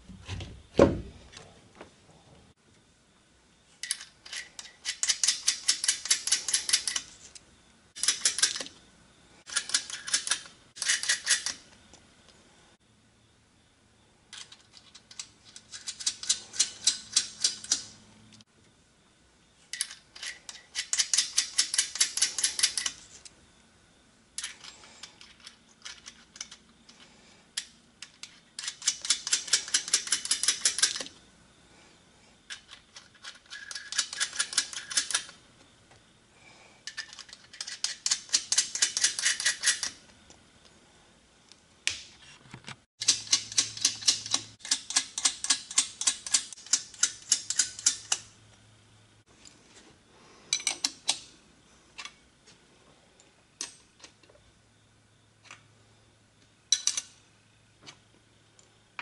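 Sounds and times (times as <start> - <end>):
hand ratchet clicking: 43.0 - 48.2.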